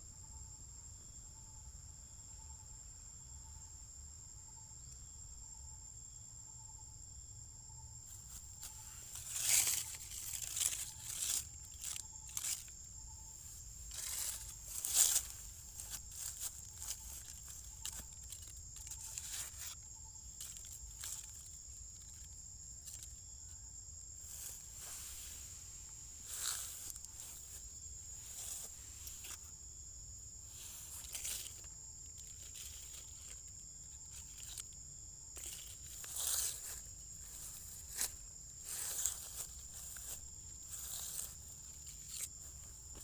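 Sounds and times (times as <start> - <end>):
high-pitched insect trill: 0.0 - 43.0
rustling in dry leaf litter: 8.1 - 23.5, 24.2 - 29.6, 30.3 - 43.0.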